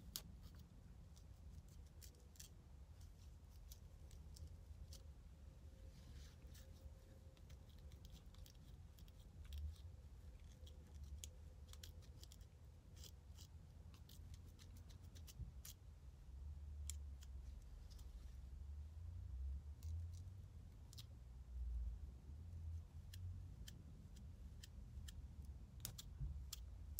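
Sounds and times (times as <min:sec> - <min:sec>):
comb scratching scalp: 0:00.0 - 0:05.2, 0:06.0 - 0:15.8.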